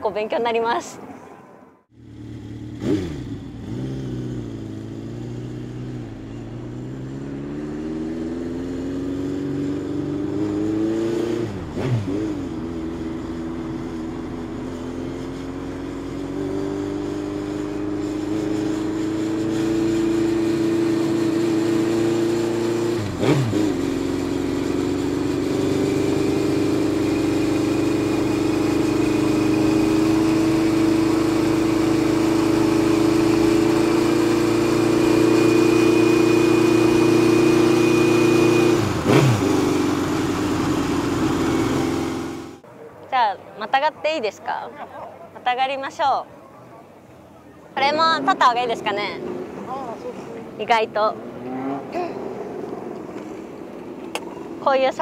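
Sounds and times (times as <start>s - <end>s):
motorcycle engine running: 1.9s - 10.8s, 11.4s - 42.7s.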